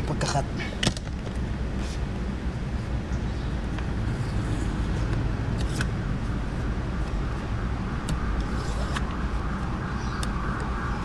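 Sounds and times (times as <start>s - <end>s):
steady higher hum: 0.0s - 11.0s
steady low rumble: 0.0s - 11.0s.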